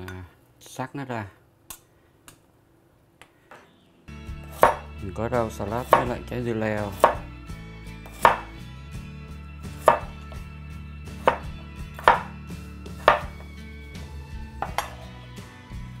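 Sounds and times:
cleaver chopping on wooden board: 4.4 - 4.9, 5.8 - 6.2, 6.9 - 7.3, 8.0 - 8.6, 9.8 - 10.4, 11.2 - 13.5, 14.6 - 15.0.

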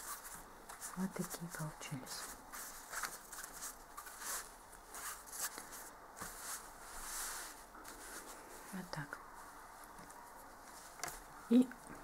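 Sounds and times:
hands rubbing fabric: 0.0 - 8.7.

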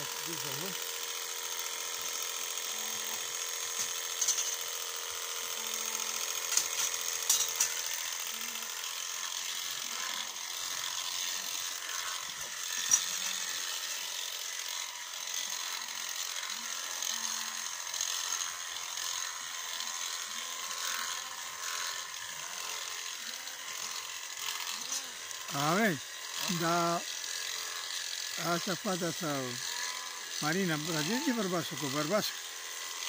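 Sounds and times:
electric shears whining: 0.0 - 33.0.

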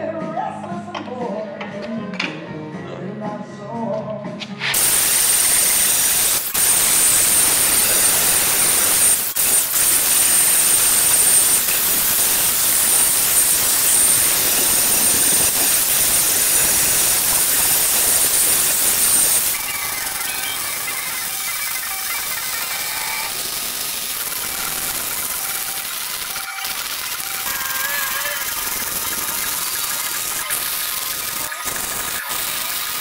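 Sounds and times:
grinder grinding steel: 4.6 - 33.0.

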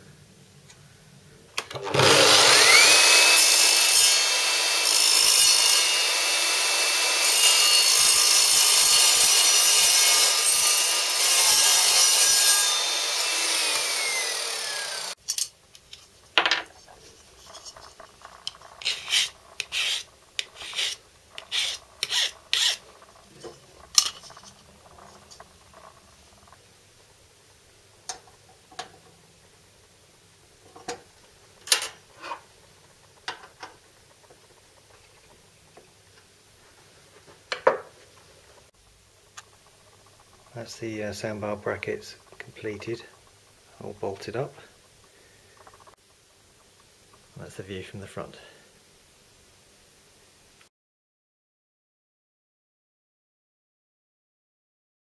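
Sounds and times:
mitre saw cutting metal: 1.7 - 15.2, 18.3 - 23.0
short scrapes: 18.7 - 23.7.

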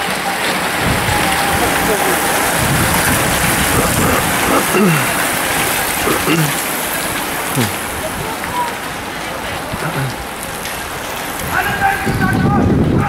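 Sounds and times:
bicycle tyres hissing on tarmac: 0.1 - 12.1
brief voices: 0.4 - 6.6, 7.5 - 7.8.

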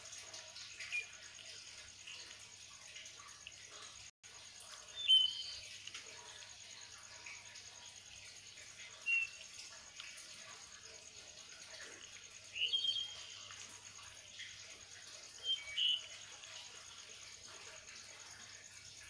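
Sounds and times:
short high bird chirps: 15.4 - 16.1.

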